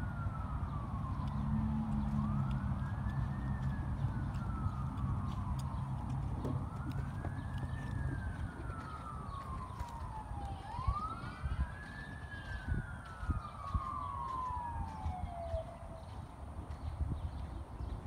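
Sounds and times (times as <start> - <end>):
siren wailing: 0.0 - 16.5
horse hooves on sand: 0.4 - 18.0.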